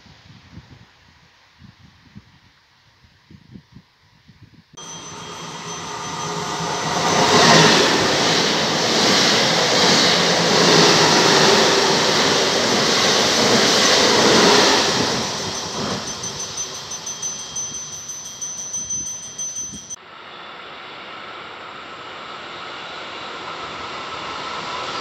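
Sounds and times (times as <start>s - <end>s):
high whine: 4.8s - 23.8s
train passing at speed: 4.8s - 25.0s.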